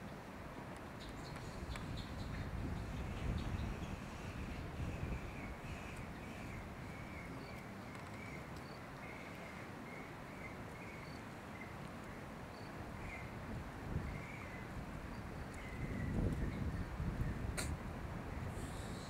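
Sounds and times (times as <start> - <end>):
steady hiss: 17.4 - 19.0.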